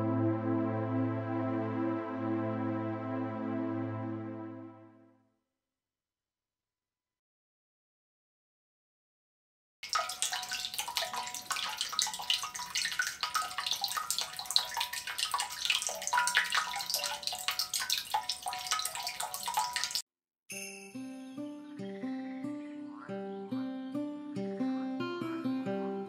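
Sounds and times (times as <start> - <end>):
water drops plinking: 9.8 - 20.0
water trickling and splashing: 9.8 - 20.0.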